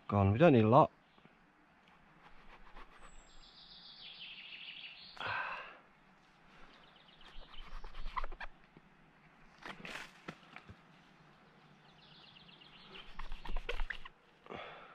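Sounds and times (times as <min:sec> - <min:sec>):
knife cutting fungus: 0:07.2 - 0:08.5, 0:12.9 - 0:14.1
small bird trilling: 0:07.2 - 0:08.5.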